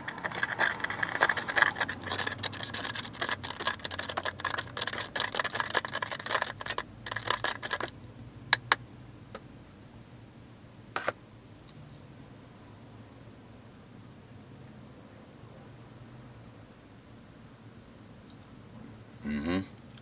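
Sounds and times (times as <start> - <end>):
screwdriver scraping plastic container: 0.0 - 7.9.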